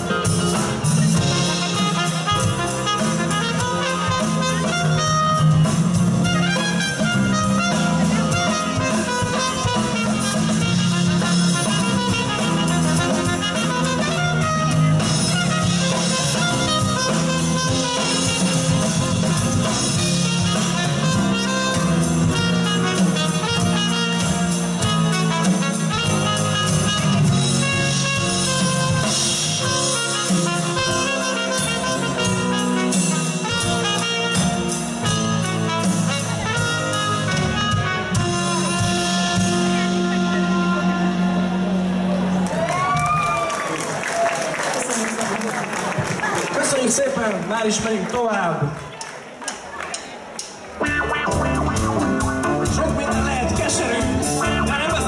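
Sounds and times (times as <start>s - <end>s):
trumpet: 0.0s - 42.4s, 50.8s - 55.0s
keyboard: 0.0s - 43.0s, 45.9s - 55.0s
bass guitar: 0.0s - 43.7s, 50.6s - 55.0s
drum kit: 0.0s - 47.8s, 49.5s - 55.0s
electric guitar: 50.7s - 55.0s.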